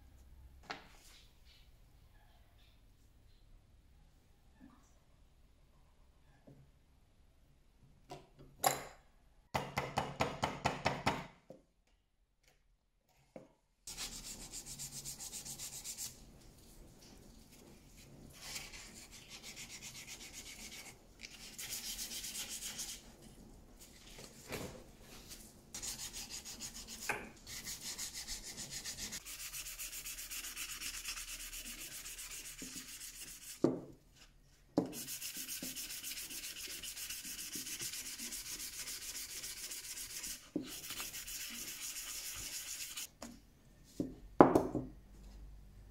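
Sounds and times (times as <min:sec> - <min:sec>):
sandpaper rubbing wood: 0:13.9 - 0:16.2, 0:18.4 - 0:23.0, 0:25.8 - 0:33.6, 0:34.9 - 0:43.1.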